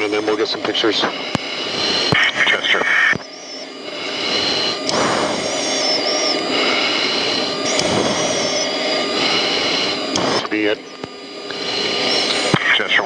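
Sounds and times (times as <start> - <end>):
intercom clicks: 0.0 - 3.6
high whine: 0.0 - 13.0
jet engine and airflow noise: 0.0 - 13.0.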